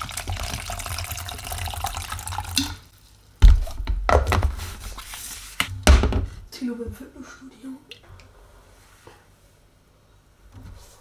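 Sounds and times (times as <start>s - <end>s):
water pouring into plastic cup: 0.0s - 2.9s.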